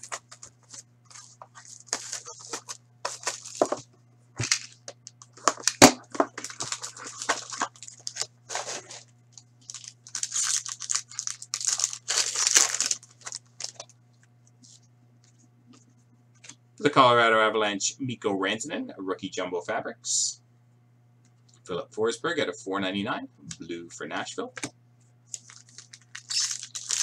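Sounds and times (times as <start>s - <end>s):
foil packs crinkling: 0.0s - 3.8s, 4.4s - 13.9s, 25.3s - 27.0s
steady low hum: 0.0s - 27.0s
plastic wrap tearing: 1.1s - 3.8s, 4.4s - 13.9s, 25.3s - 27.0s.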